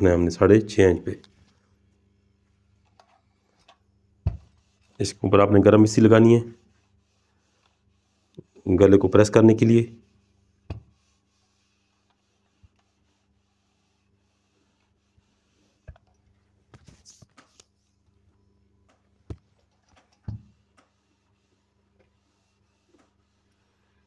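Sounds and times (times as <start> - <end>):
iron rubbing on fabric: 4.4 - 15.9, 20.5 - 24.0.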